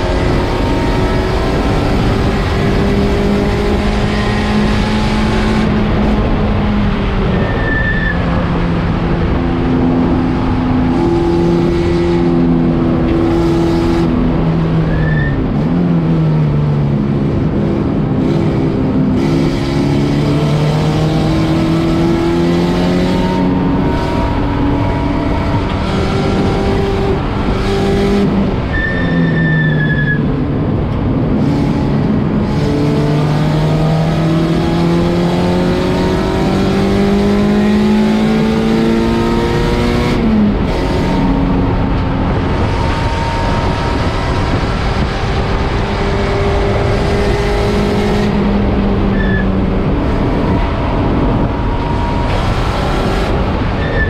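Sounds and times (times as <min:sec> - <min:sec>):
constant rushing noise: 0:00.0 - 0:54.0
race car engine running hard: 0:00.0 - 0:54.0.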